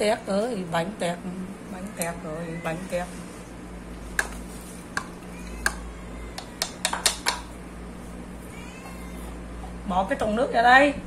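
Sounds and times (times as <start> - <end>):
sharp clicks and taps: 6.4 - 7.5.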